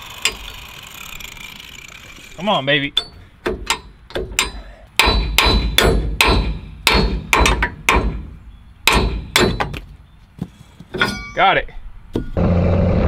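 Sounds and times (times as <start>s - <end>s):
hammer striking steel hitch: 3.0s - 9.9s, 10.9s - 12.4s.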